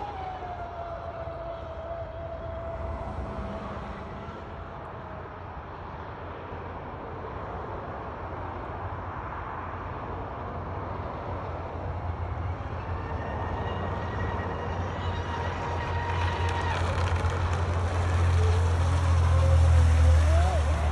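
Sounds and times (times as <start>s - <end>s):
electric boat motor whining: 12.8s - 20.9s.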